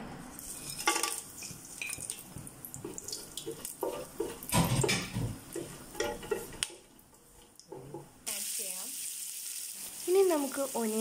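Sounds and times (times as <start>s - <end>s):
spices sizzling in hot oil: 0.4s - 11.0s
wooden spatula scraping pot: 2.3s - 6.6s.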